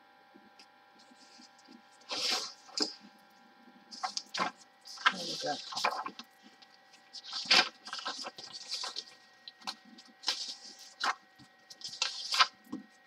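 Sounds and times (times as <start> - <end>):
paper rustling: 1.0 - 3.1, 3.9 - 13.0.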